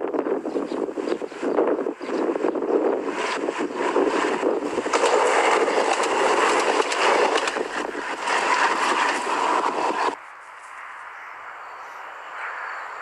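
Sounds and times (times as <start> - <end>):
diesel railcar running noise: 0.0 - 10.3
scattered clicks: 4.8 - 10.2.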